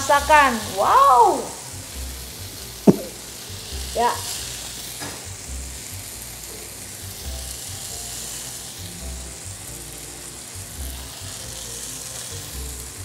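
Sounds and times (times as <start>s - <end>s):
meat skewers sizzling on grill: 0.0s - 13.0s
soft background music: 0.0s - 13.0s.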